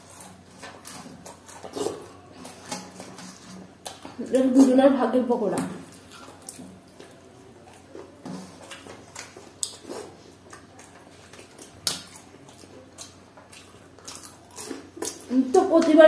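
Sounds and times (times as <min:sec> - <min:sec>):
chewing and lip smacks: 0:05.8 - 0:15.3.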